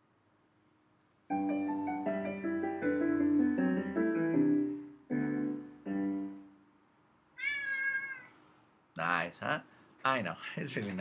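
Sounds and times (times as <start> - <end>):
piano-like app jingle: 1.3 - 6.6.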